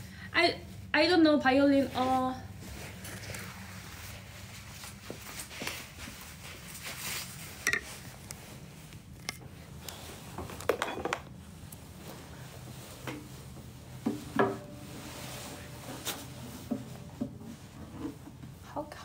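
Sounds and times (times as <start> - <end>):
low steady hum: 0.0 - 19.0
objects knocking and rubbing: 14.0 - 18.6
short pitched sound: 14.6 - 18.0.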